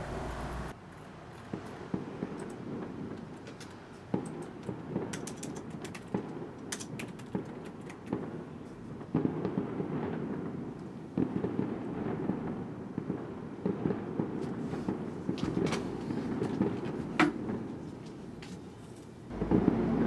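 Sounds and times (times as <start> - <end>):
firecracker crackling: 0.0 - 20.0
firecrackers banging: 0.0 - 20.0
computer keys clicking: 3.4 - 8.1.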